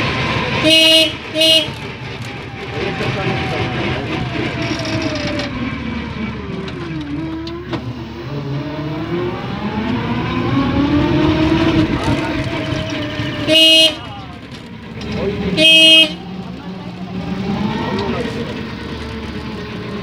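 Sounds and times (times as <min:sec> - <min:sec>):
road rumble: 0:00.0 - 0:20.0
vehicle motor whine: 0:00.0 - 0:20.0
car horn honk: 0:00.6 - 0:01.8, 0:13.4 - 0:14.3, 0:15.4 - 0:16.3.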